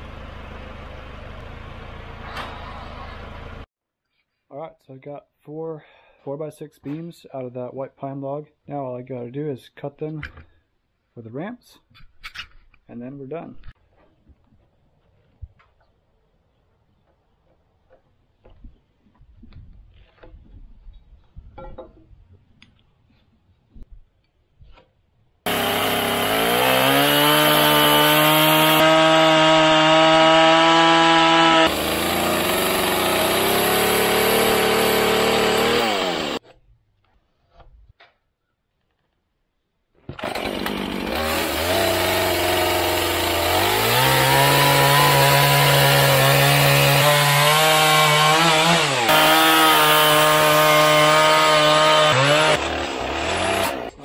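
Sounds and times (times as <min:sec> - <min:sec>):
chainsaw cutting wood: 0:25.5 - 0:36.4, 0:40.0 - 0:54.0.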